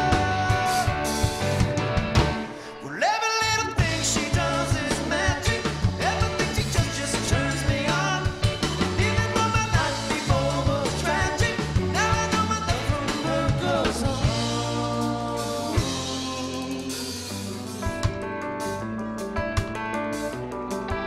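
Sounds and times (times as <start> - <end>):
man singing: 0.0 - 1.3, 2.6 - 17.6
rock band playing: 0.0 - 21.0.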